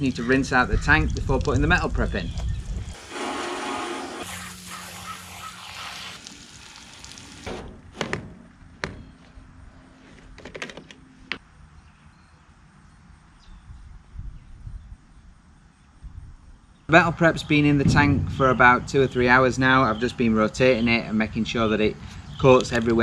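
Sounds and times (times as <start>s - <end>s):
hose spraying into steel tank: 2.8s - 7.6s
sharp clicks and knocks: 10.2s - 11.4s.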